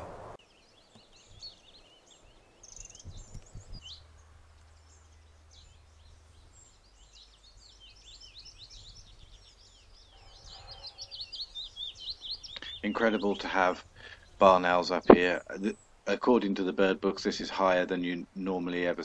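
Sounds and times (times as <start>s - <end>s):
songbirds chirping: 0.0s - 19.0s
faint low rumble: 12.9s - 18.4s.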